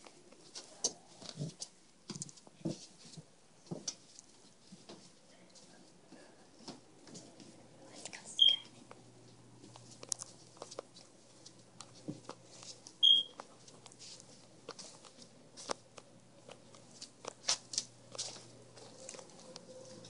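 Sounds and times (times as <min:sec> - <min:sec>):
clothing rustling on microphone: 0:09.6 - 0:15.9.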